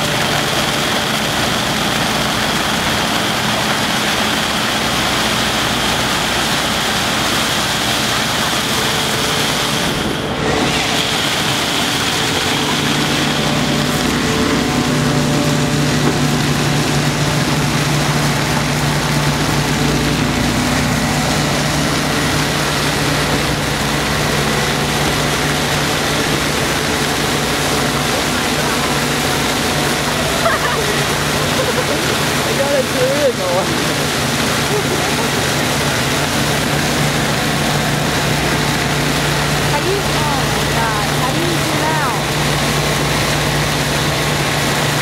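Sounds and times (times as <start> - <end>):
crushed ice rushing through hose: 0.0 - 45.0
low machine hum: 0.0 - 45.0.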